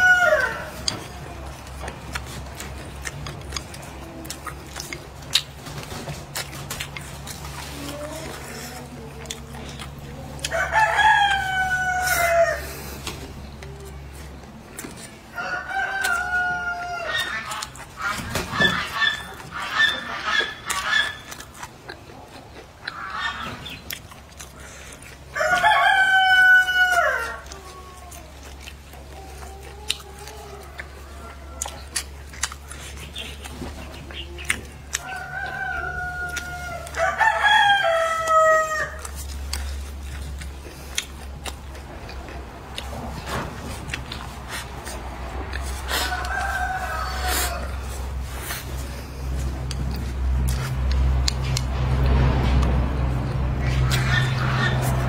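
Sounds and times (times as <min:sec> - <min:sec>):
rooster crowing: 0:00.0 - 0:00.9, 0:10.4 - 0:12.7, 0:15.3 - 0:17.3, 0:25.3 - 0:27.9, 0:34.9 - 0:39.1, 0:45.8 - 0:48.1
chickens clucking: 0:00.0 - 0:55.0.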